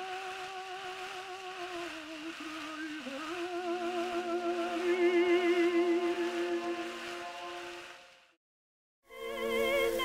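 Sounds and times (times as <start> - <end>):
tenor singing with vibrato: 0.0 - 7.9.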